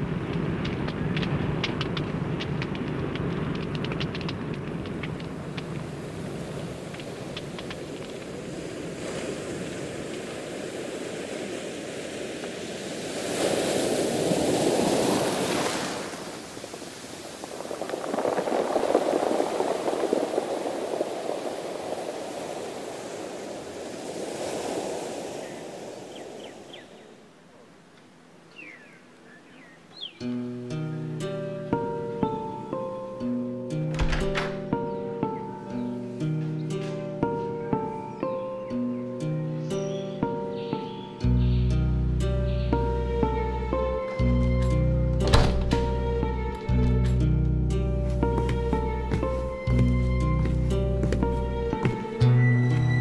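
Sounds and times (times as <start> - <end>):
waves breaking: 0.0 - 27.7, 48.1 - 53.0.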